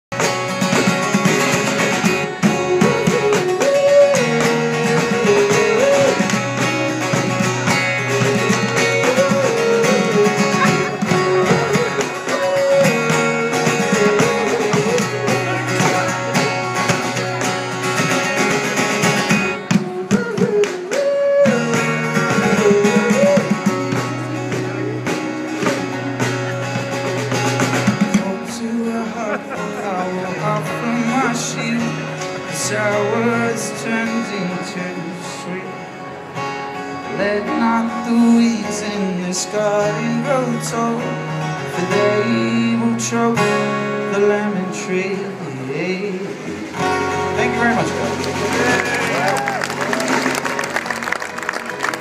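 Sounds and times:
strummed acoustic guitar: 0:00.1 - 0:52.0.

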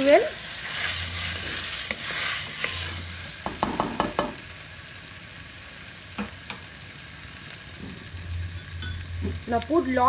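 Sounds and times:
faint frying sizzle: 0:00.0 - 0:10.0
wooden spoon knocking on pot: 0:03.4 - 0:04.4.

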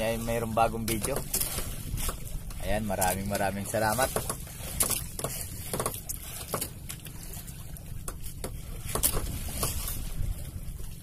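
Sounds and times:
boat engine rumble: 0:00.0 - 0:11.0.

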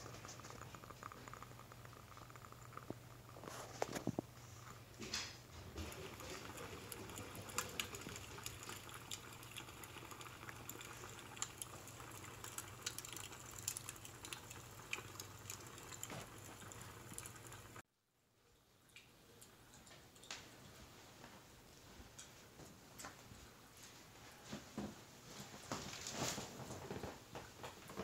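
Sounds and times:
wood fire crackling: 0:00.0 - 0:17.8.

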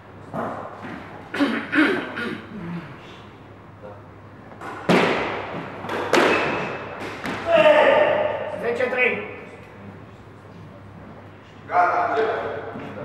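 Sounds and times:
squash ball smacking walls: 0:04.6 - 0:08.1.

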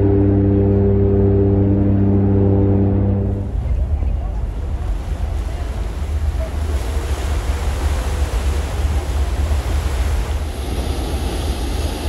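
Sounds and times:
higher steady drone: 0:00.0 - 0:04.7
water rushing past: 0:00.0 - 0:12.0
wind buffeting microphone: 0:00.0 - 0:12.0.

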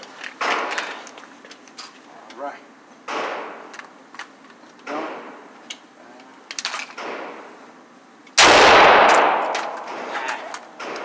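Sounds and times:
rifle shot echoing indoors: 0:08.4 - 0:10.1.

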